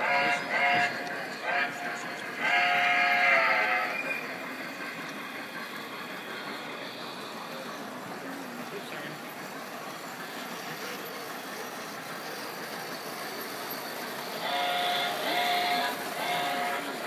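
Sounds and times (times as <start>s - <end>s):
toy train clattering on track: 0.0s - 17.0s
train steam whistle blasts: 2.4s - 4.3s, 14.4s - 17.0s.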